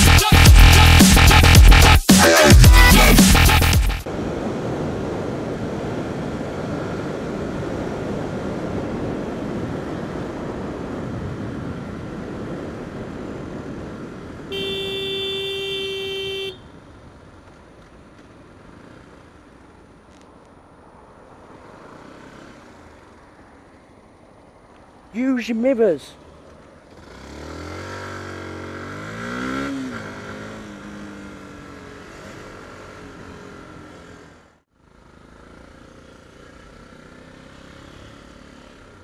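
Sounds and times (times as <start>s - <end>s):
wind and motorcycle engine: 4.0s - 39.0s
vehicle horn: 14.5s - 16.8s.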